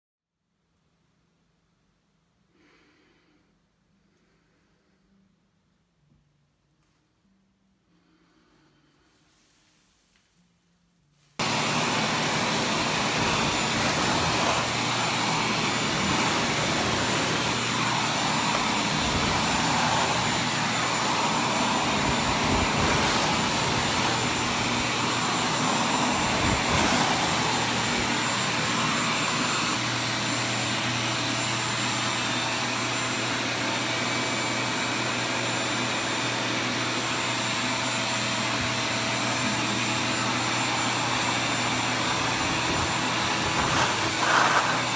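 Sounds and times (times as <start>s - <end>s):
scraper on textured ceiling: 7.9s - 29.7s, 41.8s - 44.9s
shop vacuum running: 11.4s - 44.9s.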